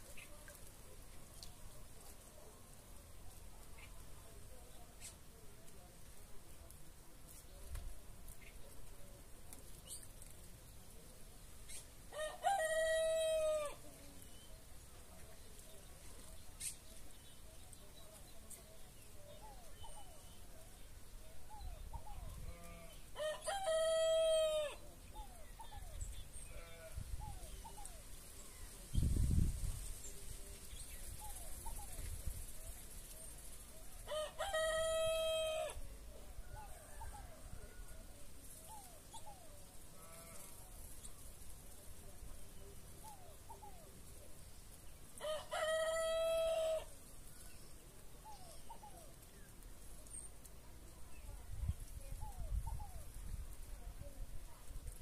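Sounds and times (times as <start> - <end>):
rooster crowing: 12.1 - 13.8, 23.2 - 24.8, 34.1 - 35.8, 45.2 - 46.9.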